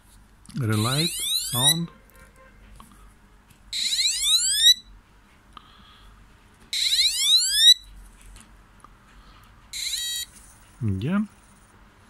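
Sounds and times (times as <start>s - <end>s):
electronic warning whoop tone: 0.8s - 1.9s, 3.8s - 4.9s, 6.8s - 7.8s.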